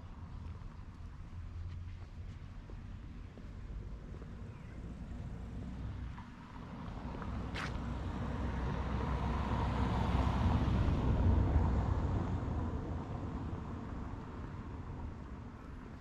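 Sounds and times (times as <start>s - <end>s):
car driving past: 6.8s - 15.1s.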